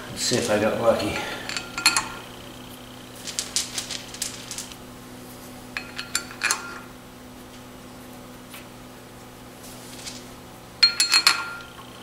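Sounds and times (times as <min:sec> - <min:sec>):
steady low hum: 0:00.0 - 0:12.0
metal clicks and clinks: 0:01.2 - 0:02.3, 0:05.8 - 0:06.9, 0:10.8 - 0:11.8.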